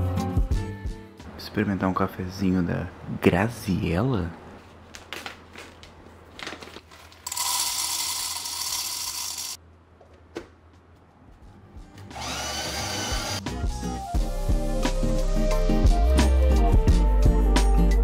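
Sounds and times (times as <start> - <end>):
small electric motor whining: 7.3 - 9.6, 12.2 - 13.4.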